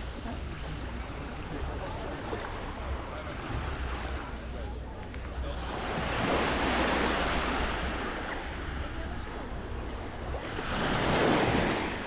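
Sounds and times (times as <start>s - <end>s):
wind rumble on microphone: 0.0s - 12.0s
sea waves washing onto beach: 5.5s - 12.0s.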